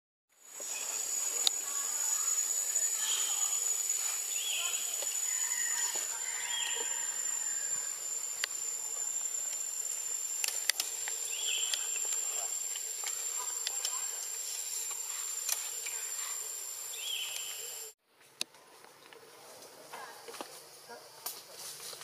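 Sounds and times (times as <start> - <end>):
high-pitched insect drone: 0.4 - 18.0.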